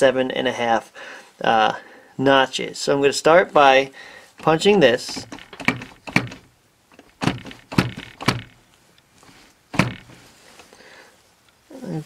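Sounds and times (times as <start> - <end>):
center punch knocking on metal: 4.4 - 6.5, 7.2 - 8.6, 9.8 - 10.2.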